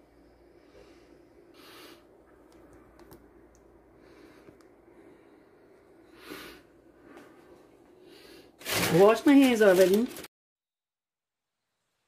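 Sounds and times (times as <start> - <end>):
faint breaths: 0.0 - 2.4, 3.8 - 8.6.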